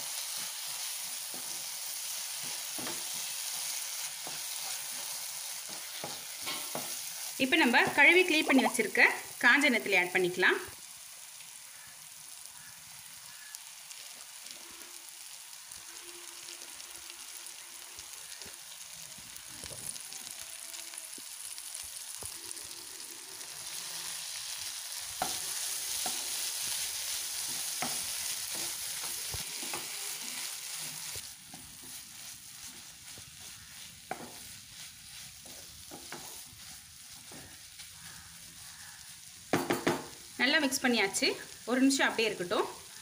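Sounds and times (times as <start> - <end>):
masala sizzling in oil: 0.0 - 43.0
spatula scraping a pan: 0.2 - 8.7, 22.2 - 39.2.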